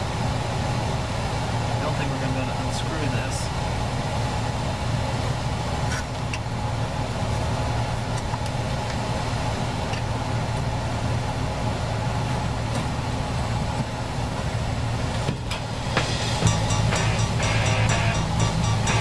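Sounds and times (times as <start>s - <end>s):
fan humming: 0.0s - 19.0s.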